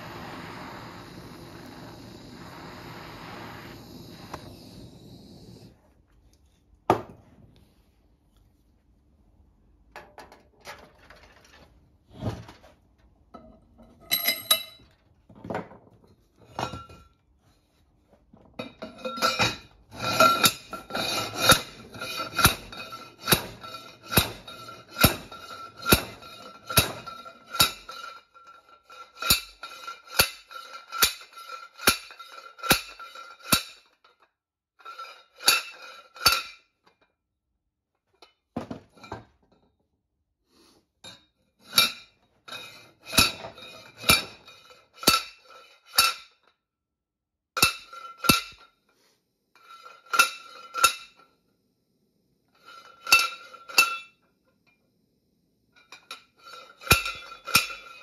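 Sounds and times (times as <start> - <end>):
metal clinks and knocks: 13.3 - 17.2, 18.4 - 34.2, 55.8 - 58.0
steel pipe clanking on metal: 13.4 - 14.9, 18.6 - 33.8, 47.6 - 48.7, 49.6 - 51.2, 52.6 - 54.2, 55.8 - 58.0.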